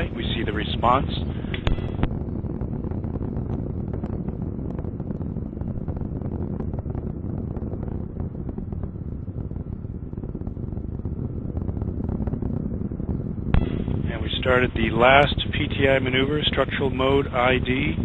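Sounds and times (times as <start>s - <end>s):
rocket motor rumble: 0.0s - 18.0s
crackle of sharp pops: 0.9s - 15.7s.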